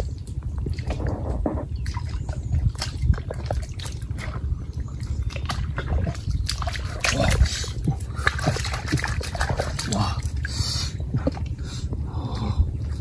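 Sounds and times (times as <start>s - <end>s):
bare feet splashing in mud: 1.8s - 11.5s.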